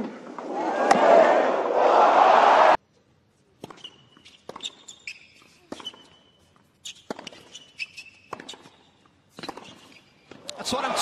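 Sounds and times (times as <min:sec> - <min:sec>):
racket striking tennis ball: 0:03.6 - 0:06.3, 0:06.9 - 0:10.4
shoes squeaking on court: 0:03.6 - 0:10.5
ball bouncing: 0:06.9 - 0:10.5.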